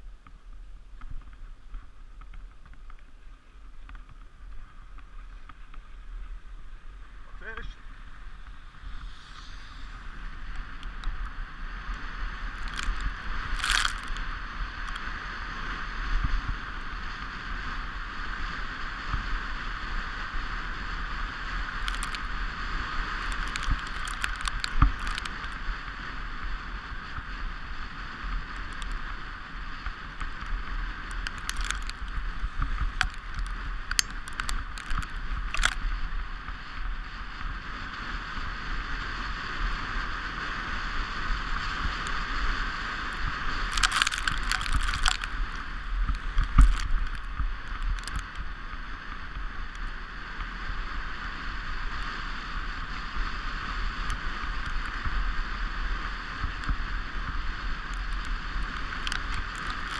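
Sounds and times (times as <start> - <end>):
toboggan runners hissing over snow: 0.0 - 59.9
sharp scrapes and clicks: 11.9 - 15.1, 21.7 - 22.4, 23.0 - 25.7, 28.5 - 29.2, 29.8 - 35.9, 43.5 - 48.5, 57.9 - 59.9.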